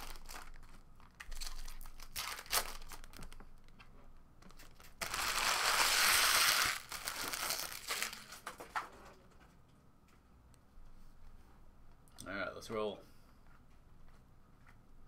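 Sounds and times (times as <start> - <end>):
foil wrappers crinkling: 0.0 - 3.7, 4.5 - 8.6.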